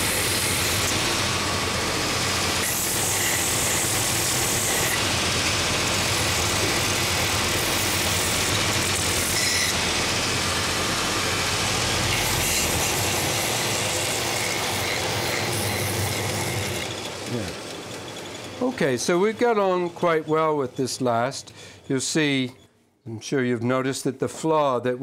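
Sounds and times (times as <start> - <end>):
motor hum: 0.0 - 20.8
belt sander grinding wood: 0.0 - 22.4.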